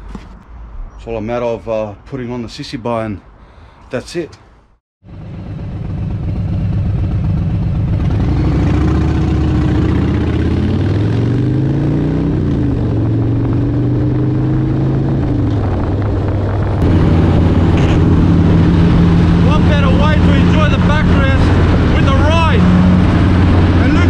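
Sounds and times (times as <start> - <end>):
motorcycle engine accelerating: 5.0 - 24.0.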